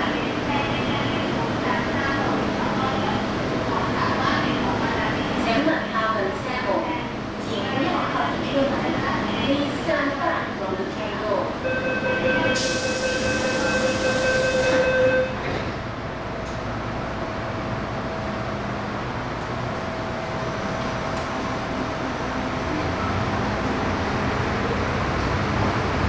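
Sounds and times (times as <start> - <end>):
warning tone: 11.6 - 15.4
train running rumble: 13.6 - 26.0.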